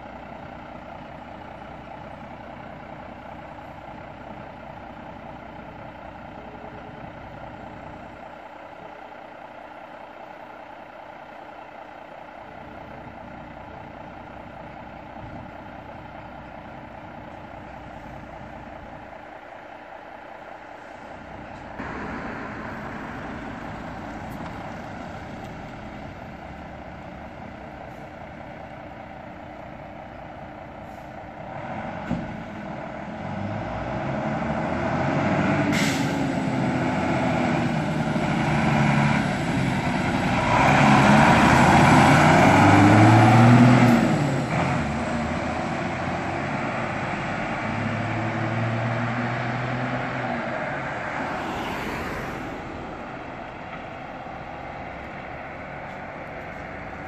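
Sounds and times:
fire engine diesel revving past: 0:20.5 - 0:57.0.

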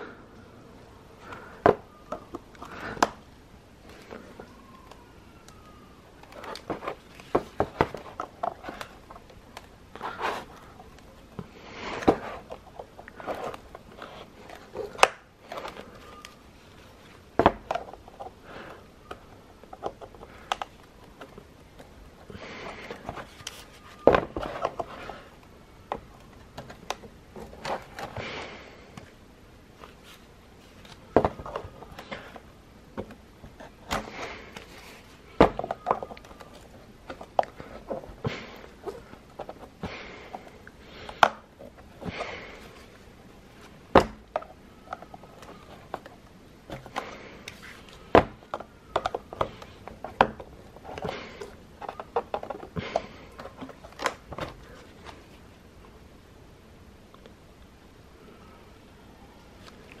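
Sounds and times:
plastic wheel rustling in cardboard box: 0:06.1 - 0:25.4.

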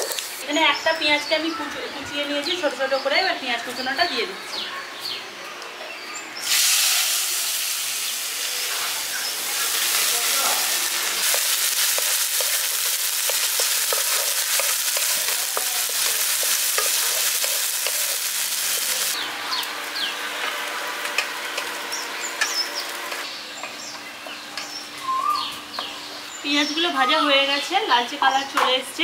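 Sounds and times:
onion sizzling in oil: 0:00.0 - 0:00.4, 0:06.4 - 0:19.2
birds chirping: 0:00.0 - 0:06.5, 0:07.8 - 0:20.6, 0:21.7 - 0:28.9.

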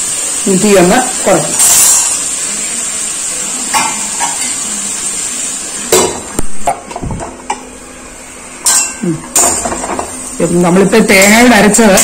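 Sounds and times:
steady hiss: 0:00.0 - 0:06.9
metal lid clanking on pan: 0:03.7 - 0:04.6, 0:08.6 - 0:10.2.

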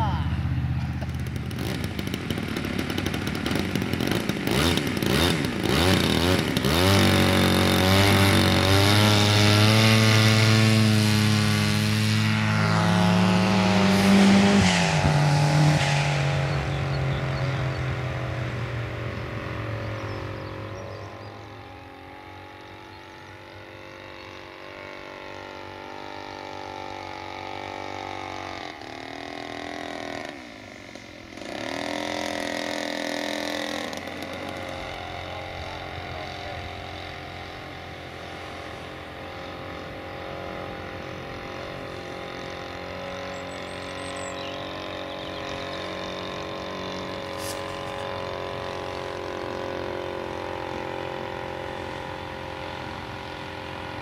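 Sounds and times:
model airplane engine buzzing: 0:00.0 - 0:54.0.

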